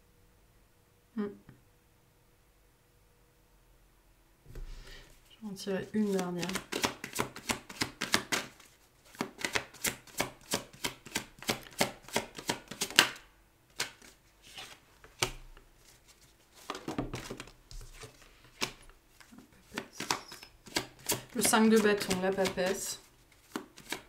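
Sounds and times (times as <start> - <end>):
cards being shuffled: 5.9 - 24.0
cards tapping and sliding: 6.0 - 24.0.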